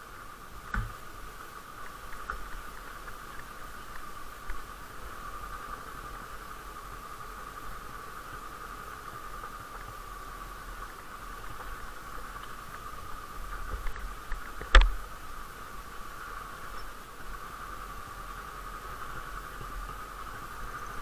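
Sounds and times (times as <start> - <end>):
vehicle on rough dirt track: 0.0 - 21.0
small knocks: 0.7 - 1.0.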